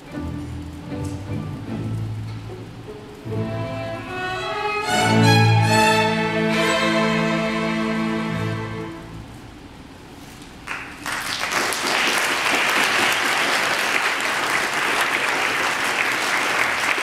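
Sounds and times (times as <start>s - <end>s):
audience applause: 10.6s - 17.0s.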